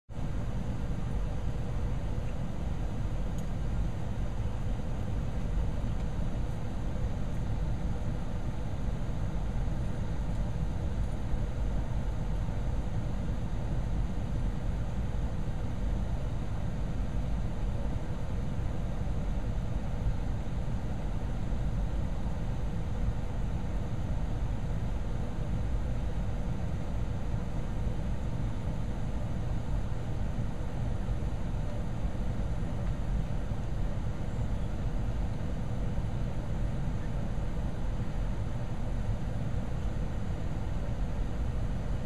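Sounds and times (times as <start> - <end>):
outdoor background rumble: 0.1 - 42.0.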